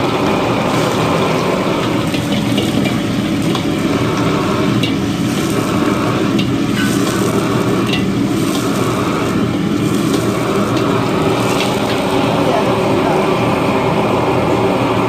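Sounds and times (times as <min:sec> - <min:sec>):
ladle stirring and pouring liquid: 0:00.0 - 0:12.5
fish sizzling in a wok: 0:00.0 - 0:15.0
gas burner rushing: 0:00.0 - 0:15.0
ladle clinking against wok: 0:06.3 - 0:08.7.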